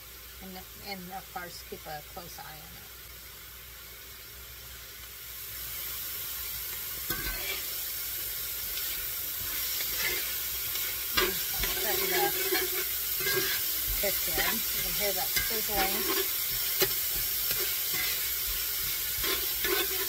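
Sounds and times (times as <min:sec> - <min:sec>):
food sizzling in a skillet: 0:00.0 - 0:20.0.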